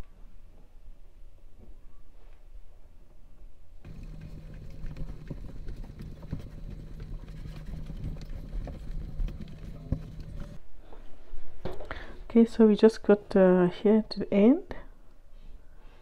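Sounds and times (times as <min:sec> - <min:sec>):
steady low hum: 0:03.8 - 0:10.7
crochet hook clicking and yarn rubbing: 0:03.9 - 0:10.6.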